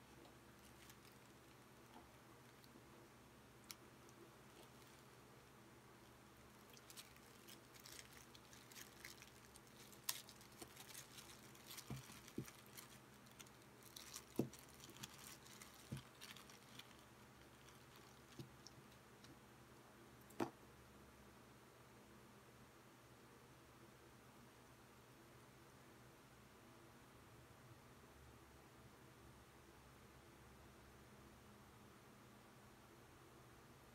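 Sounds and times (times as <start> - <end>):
plastic bag crinkling: 0.1 - 2.7, 3.6 - 5.2, 6.4 - 19.0.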